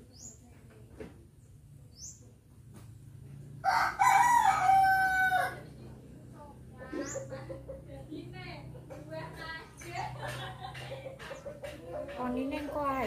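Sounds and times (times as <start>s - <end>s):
rooster crowing: 3.6s - 5.7s.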